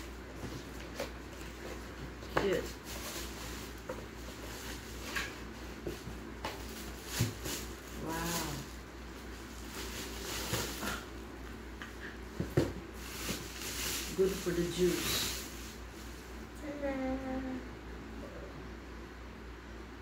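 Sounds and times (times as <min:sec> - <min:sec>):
plastic bag rustling: 0:00.3 - 0:11.3, 0:12.3 - 0:16.4.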